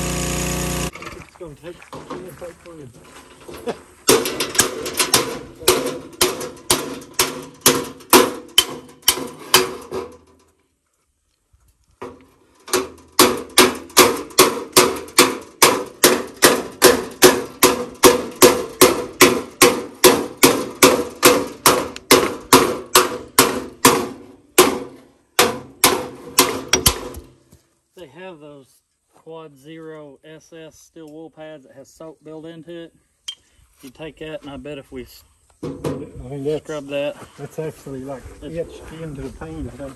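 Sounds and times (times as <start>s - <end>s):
hammer striking sheet metal: 4.1s - 10.2s, 12.7s - 27.3s.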